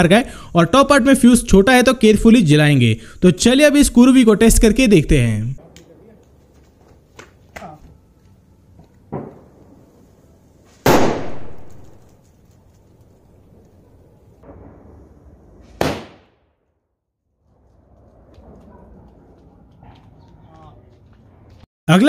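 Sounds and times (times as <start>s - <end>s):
small firecracker pop: 9.1s - 9.5s, 15.7s - 16.4s
firecracker bangs: 9.1s - 9.8s, 10.8s - 12.0s, 15.6s - 16.6s.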